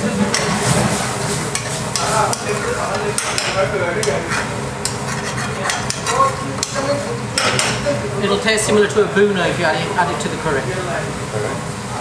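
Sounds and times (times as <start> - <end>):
spoon scraping frying pan: 4.0 - 6.4.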